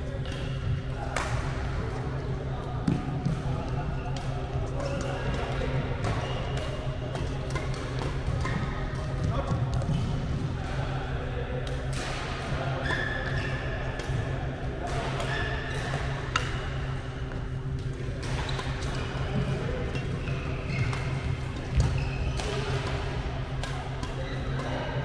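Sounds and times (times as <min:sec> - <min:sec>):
steady low hum: 0:00.0 - 0:25.0
rackets hitting shuttlecock: 0:14.8 - 0:25.0
shoe squeaks on court floor: 0:21.7 - 0:22.4.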